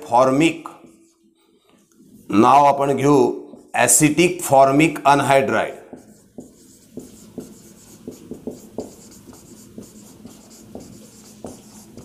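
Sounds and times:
marker writing on a whiteboard: 0.0 - 12.0.

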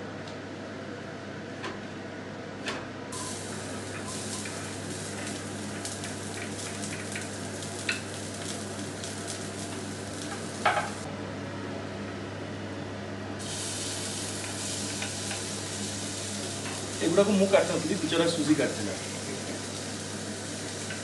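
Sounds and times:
onions sizzling in a frying pan: 3.2 - 11.1, 13.4 - 21.0.

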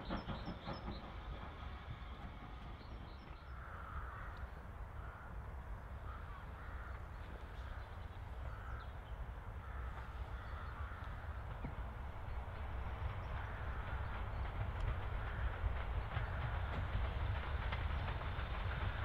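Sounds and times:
crows cawing: 3.4 - 11.5, 13.4 - 14.1, 15.2 - 16.6.

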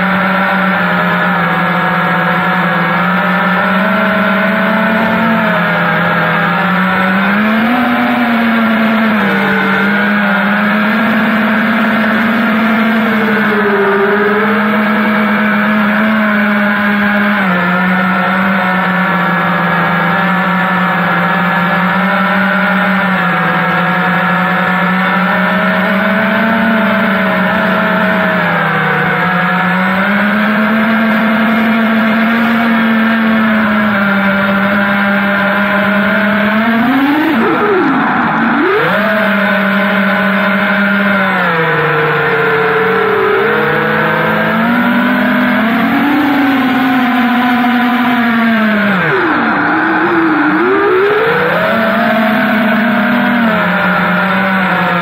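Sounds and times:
quadcopter motors buzzing: 0.0 - 55.0.

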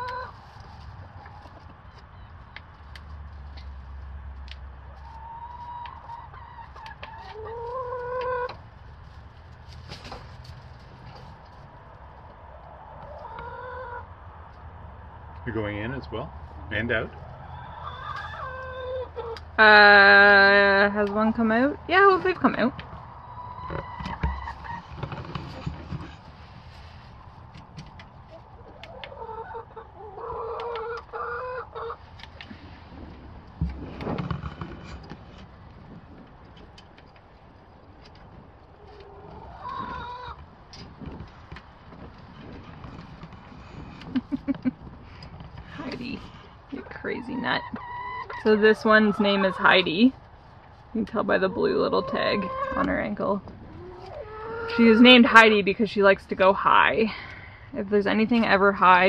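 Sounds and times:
hen scuffling: 0.0 - 12.2, 22.0 - 31.2
hens clucking: 0.0 - 59.0.

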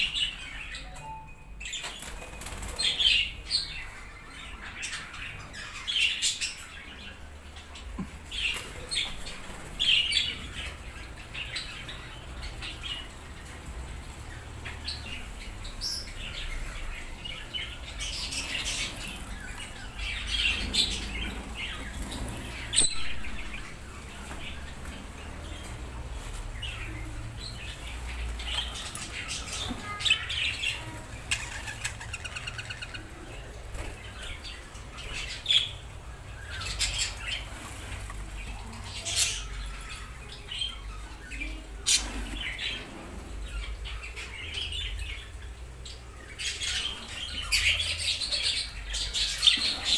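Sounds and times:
budgerigars chirping: 27.6 - 37.9.

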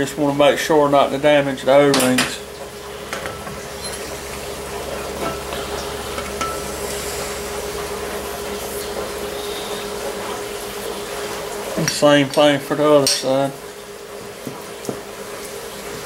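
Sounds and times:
constant workshop hum: 0.0 - 16.0.

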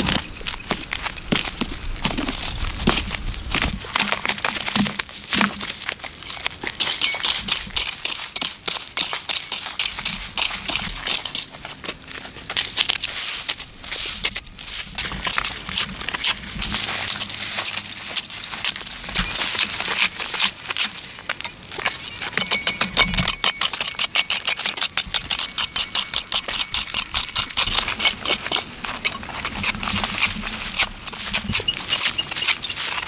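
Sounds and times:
earth and stones rattling: 0.0 - 33.0.

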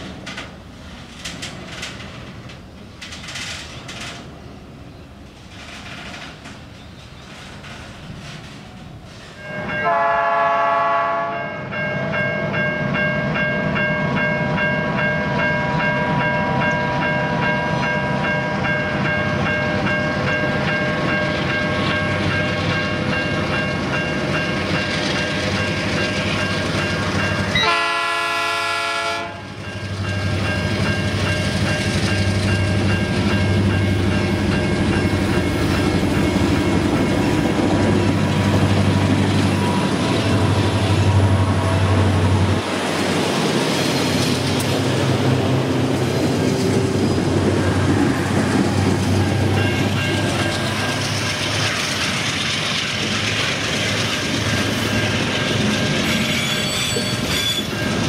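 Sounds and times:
diesel locomotive engines running: 0.0 - 58.0
train noise: 0.0 - 58.0
locomotive horn chord: 9.4 - 11.6, 27.5 - 29.5.

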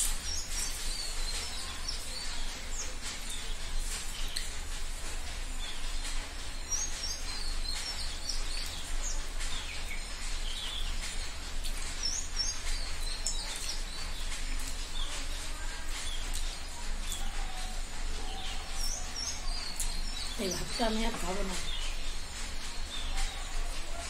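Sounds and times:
small birds chirping: 0.0 - 24.0.

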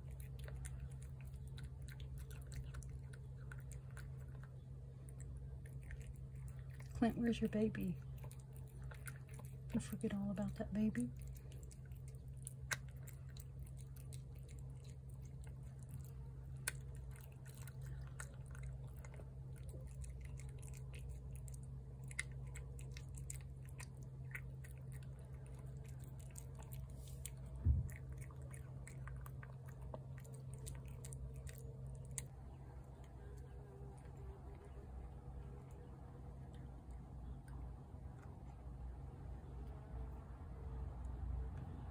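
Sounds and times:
cat chewing wet food: 0.0 - 41.9
steady low hum: 0.0 - 41.9
low thump: 27.6 - 27.9.

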